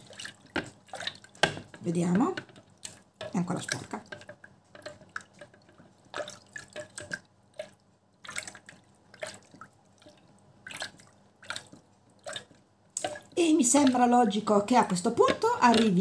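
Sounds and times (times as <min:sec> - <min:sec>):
soapy water splashing in plastic jar: 0:00.0 - 0:16.0.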